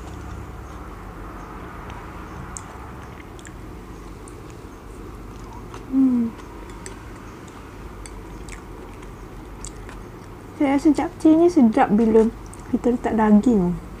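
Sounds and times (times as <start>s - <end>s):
quiet chewing: 0.0s - 10.6s, 12.0s - 12.8s
chopsticks clicking on a plate: 5.3s - 10.0s
person humming mm: 5.5s - 6.4s.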